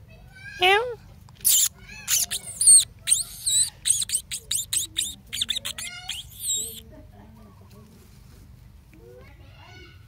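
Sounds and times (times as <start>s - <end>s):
small birds peeping chirps: 1.5s - 6.8s.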